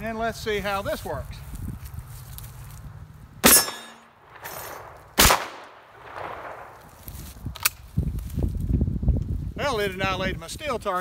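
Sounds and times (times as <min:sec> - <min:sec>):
shotgun shots with echo: 0:03.4 - 0:06.8.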